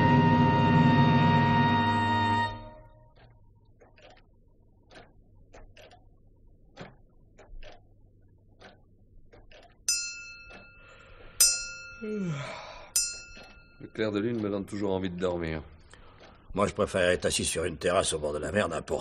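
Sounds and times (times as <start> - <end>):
clock ticking: 2.7 - 12.1, 12.9 - 19.0
clock bell striking: 9.9 - 12.0, 13.0 - 14.2.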